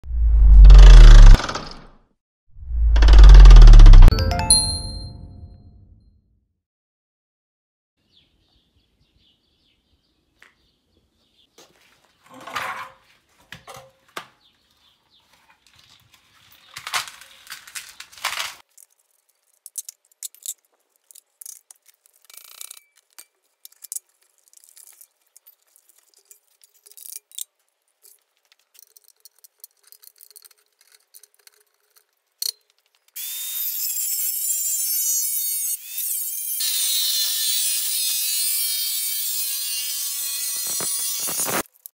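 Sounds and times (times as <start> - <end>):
angle grinder cutting steel: 33.2 - 41.7.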